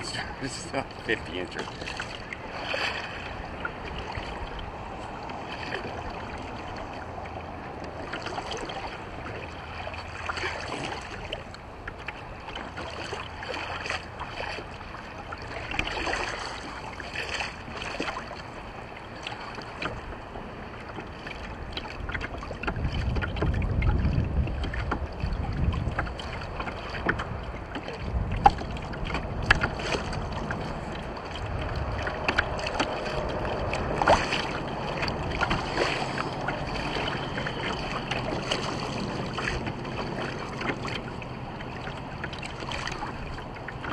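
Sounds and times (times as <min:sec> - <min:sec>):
clicks and knocks on boat: 0:00.0 - 0:43.9
water lapping against boat hull: 0:00.0 - 0:43.9
wind buffeting microphone: 0:21.5 - 0:43.9.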